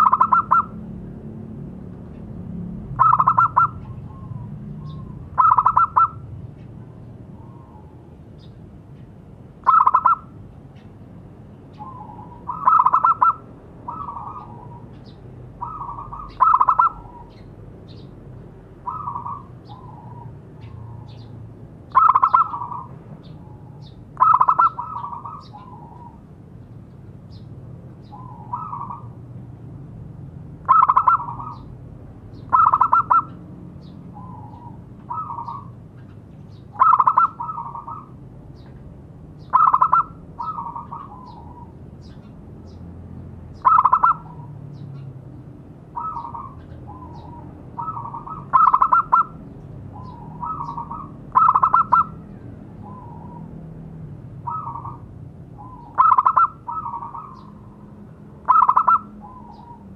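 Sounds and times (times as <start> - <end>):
dove cooing: 0.0 - 0.8, 3.0 - 6.2, 9.6 - 10.4, 11.8 - 17.5, 18.8 - 21.2, 21.9 - 26.3, 28.0 - 29.2, 30.6 - 31.7, 32.5 - 33.4, 34.1 - 35.8, 36.7 - 38.2, 39.5 - 42.2, 43.6 - 44.6, 45.9 - 53.6, 54.4 - 59.9.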